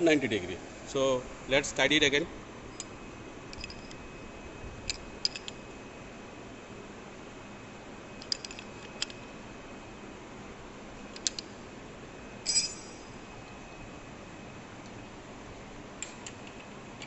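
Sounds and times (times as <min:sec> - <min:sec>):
spanner clinking on metal: 0:02.8 - 0:04.0, 0:04.9 - 0:05.6, 0:08.2 - 0:09.2, 0:12.4 - 0:13.2.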